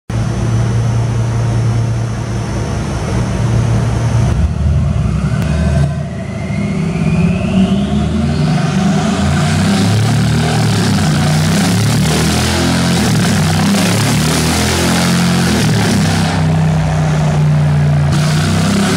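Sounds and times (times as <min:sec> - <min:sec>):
rising turbo whine: 0:00.1 - 0:18.9
car engine revving: 0:00.2 - 0:18.9.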